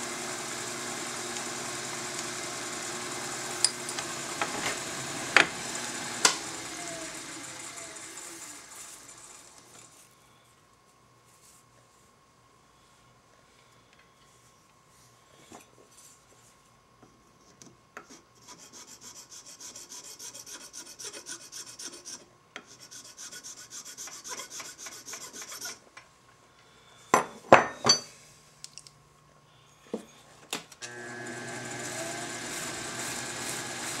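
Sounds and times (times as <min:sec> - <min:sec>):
file scraping rod: 0:18.1 - 0:25.8.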